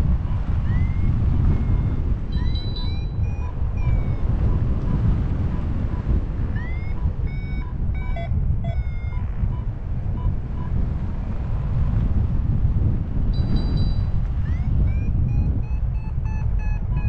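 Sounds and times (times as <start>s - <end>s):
variometer beeping: 0.0s - 10.9s, 13.3s - 17.0s
wind buffeting microphone: 0.0s - 17.0s
higher chirping tones: 0.6s - 4.4s, 6.6s - 9.6s, 13.4s - 17.0s.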